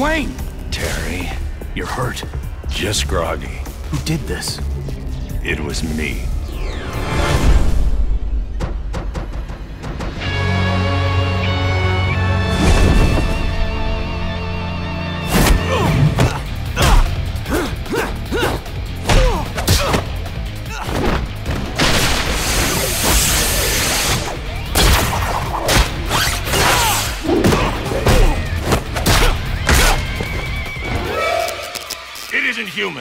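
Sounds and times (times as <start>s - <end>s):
grunts of effort: 15.6s - 21.0s
punches and thuds: 24.8s - 30.1s.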